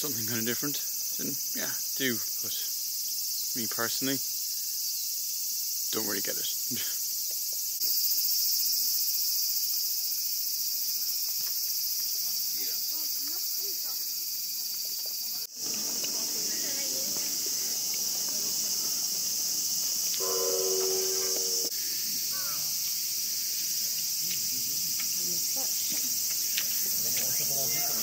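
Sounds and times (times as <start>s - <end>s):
insects chorus: 0.0s - 28.0s
short held tone: 20.2s - 21.7s.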